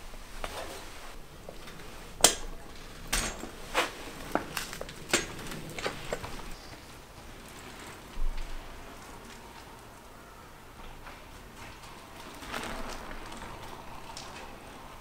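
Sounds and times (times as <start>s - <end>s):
bicycle clicks and knocks: 1.2s - 9.9s, 10.7s - 15.0s.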